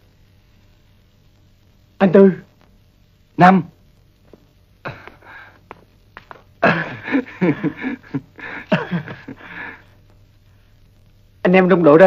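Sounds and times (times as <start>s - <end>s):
men laughing: 6.6s - 9.9s.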